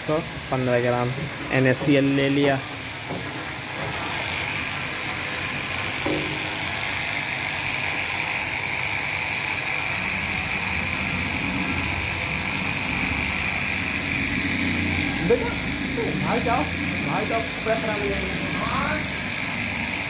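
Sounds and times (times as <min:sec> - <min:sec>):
steaming vat hiss: 0:00.0 - 0:03.6
low machine hum: 0:00.0 - 0:08.1, 0:09.6 - 0:20.0.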